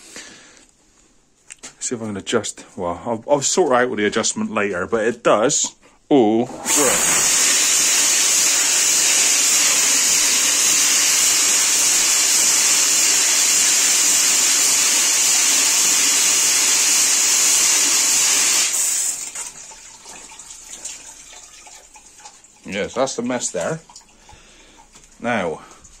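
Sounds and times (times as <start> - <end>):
water jets spraying: 6.5 - 13.6, 17.7 - 26.0.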